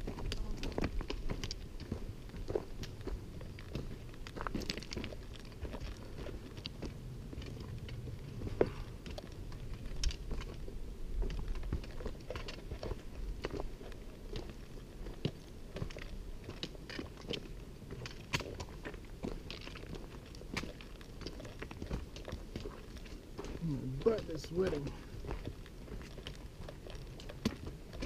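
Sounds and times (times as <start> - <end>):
footsteps crunching on rocky trail: 0.0 - 28.0
low rumble: 0.0 - 28.0.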